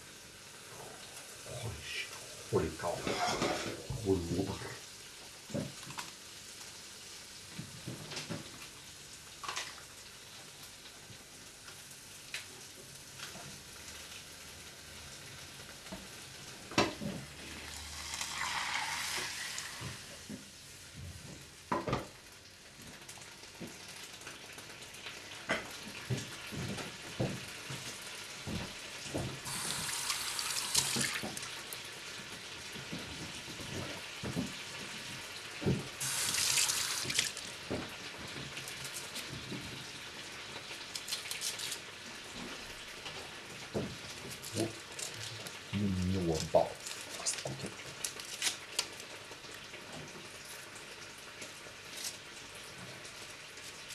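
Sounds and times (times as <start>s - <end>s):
food sizzling in a pan: 0.0s - 46.1s, 46.8s - 53.9s
pan and utensils clattering: 3.0s - 3.9s.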